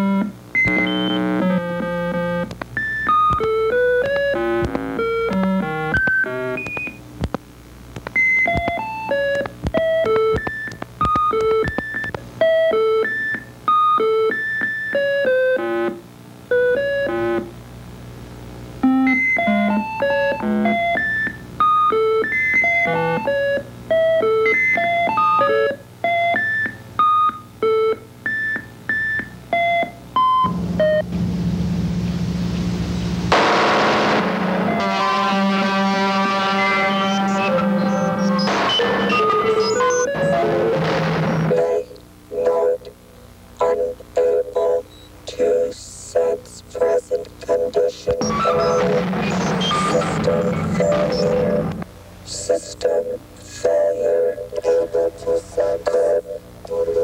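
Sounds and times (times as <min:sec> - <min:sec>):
synthesizer melody: 0:33.3 - 0:40.8.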